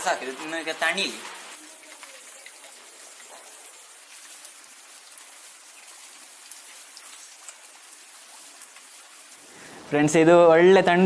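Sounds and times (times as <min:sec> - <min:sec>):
rain falling into a puddle: 0:00.0 - 0:09.9
water drops ticking: 0:01.6 - 0:09.4.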